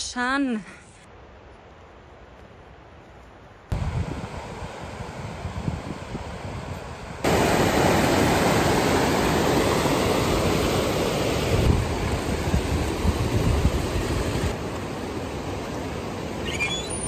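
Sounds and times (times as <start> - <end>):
river rushing over rocks: 7.2 - 16.9.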